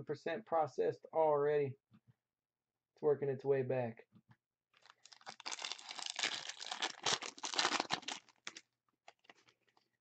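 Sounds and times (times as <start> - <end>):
plastic wrapper crinkling and tearing: 4.8 - 10.0.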